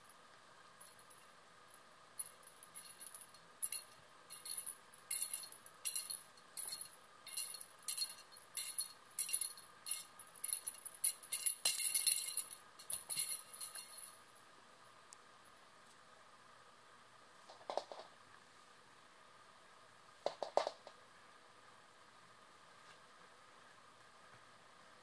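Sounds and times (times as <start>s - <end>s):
cat toy bell jingling: 2.2s - 14.2s.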